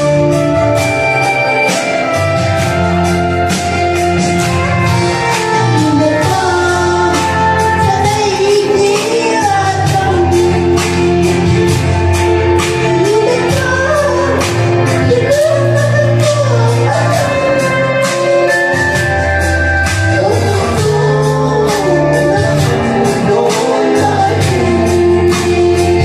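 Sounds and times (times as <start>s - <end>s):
backing music with steady beat: 0.0s - 26.0s
child singing into microphone: 5.8s - 11.0s.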